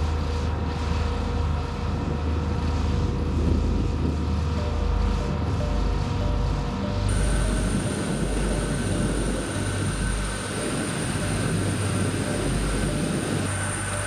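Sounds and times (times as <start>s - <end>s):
low hum: 0.0s - 14.0s
high thin whine: 2.8s - 14.0s.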